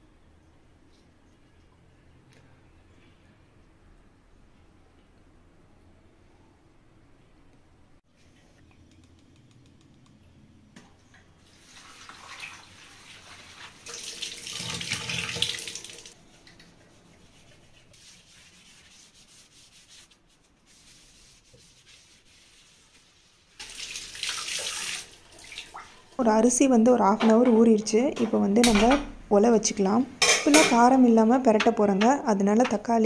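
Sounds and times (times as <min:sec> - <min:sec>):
tap water splashing into sink: 0:13.8 - 0:16.6.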